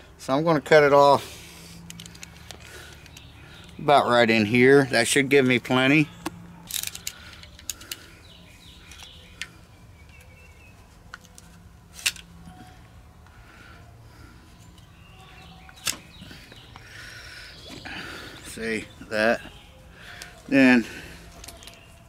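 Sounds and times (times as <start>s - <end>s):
hands handling rope and fender: 1.4s - 4.5s, 5.4s - 13.4s, 17.6s - 22.0s.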